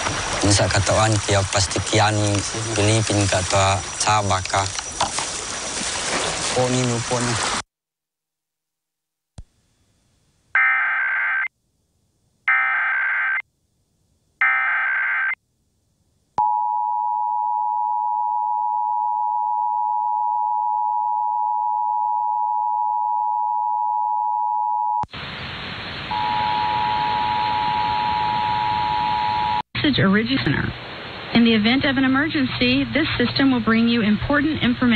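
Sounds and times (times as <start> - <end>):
loud hiss: 0.0 - 5.8, 25.1 - 27.6, 30.2 - 32.8
screeching data bursts: 1.9 - 5.6
two-tone attention signal: 26.1 - 29.6.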